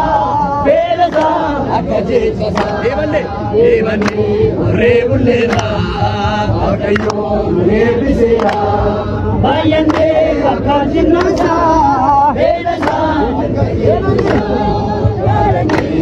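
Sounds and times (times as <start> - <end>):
crowd of men chanting: 0.0 - 16.0
sharp handclaps: 1.0 - 1.6, 2.4 - 3.1, 3.8 - 8.8, 9.5 - 13.3, 13.9 - 16.0.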